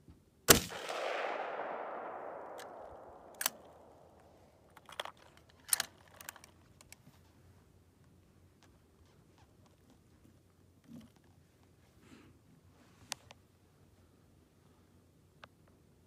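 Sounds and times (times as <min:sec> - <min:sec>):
rifle shot with echo: 0:00.5 - 0:04.7
rifle bolt clicks: 0:00.6 - 0:07.0.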